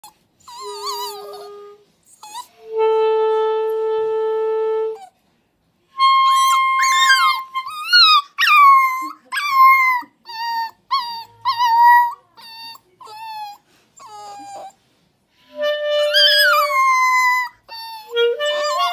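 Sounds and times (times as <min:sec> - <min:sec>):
clarinet holding long note: 0:02.6 - 0:05.0, 0:18.1 - 0:18.9
puppy howling: 0:06.3 - 0:12.7, 0:16.1 - 0:18.9.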